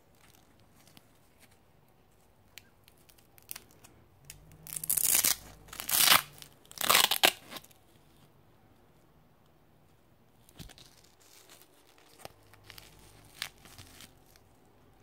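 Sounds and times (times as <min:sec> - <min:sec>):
hook-and-loop fastener ripping: 0:02.6 - 0:07.8.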